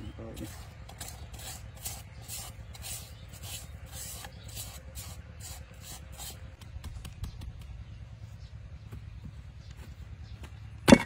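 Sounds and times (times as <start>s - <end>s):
fingers scraping a coconut bowl: 0.2s - 6.6s.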